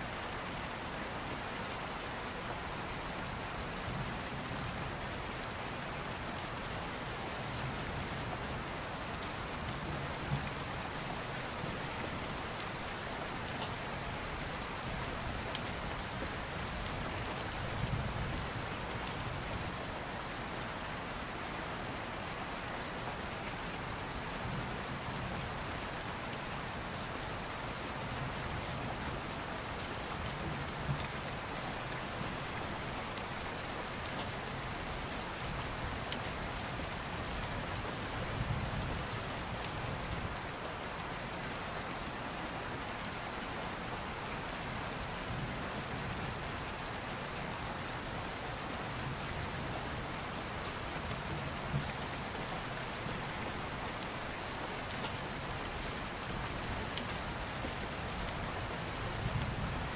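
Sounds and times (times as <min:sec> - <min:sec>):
steady rain: 0:00.0 - 0:59.9
raindrops ticking: 0:54.9 - 0:55.2.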